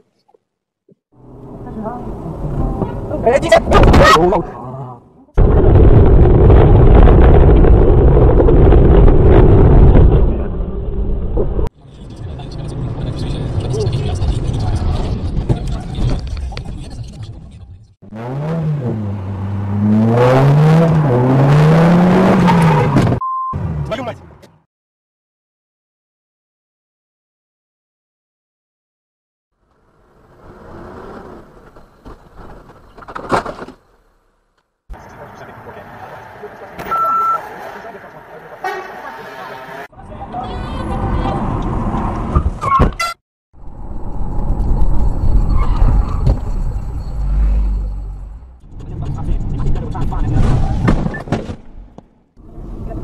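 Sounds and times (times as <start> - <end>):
car engine and road noise: 0.0 - 24.6, 29.6 - 53.0
car engine revving: 18.0 - 24.0
short steady beep: 23.2 - 23.6, 36.9 - 37.4.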